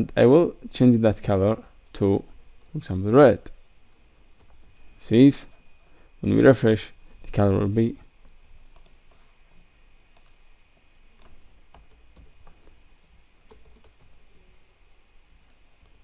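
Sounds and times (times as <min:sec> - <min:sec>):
faint high whine: 0:00.0 - 0:16.0
keyboard typing clicks: 0:08.7 - 0:09.0, 0:11.2 - 0:12.7, 0:13.5 - 0:14.5.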